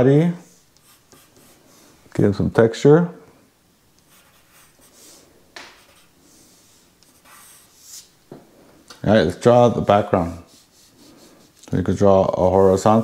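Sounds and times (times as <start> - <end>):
pencil scratching on paper: 0.4 - 1.8, 4.1 - 8.1, 10.2 - 11.6.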